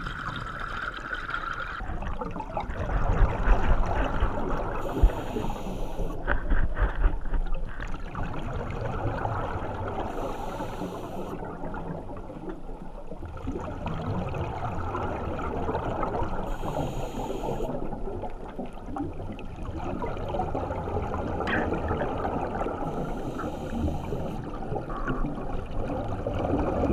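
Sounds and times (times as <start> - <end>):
rushing gurgling water underwater: 0.0 - 26.9
regulator breathing hiss: 4.8 - 6.2, 10.1 - 11.4, 16.5 - 17.7, 22.9 - 24.4.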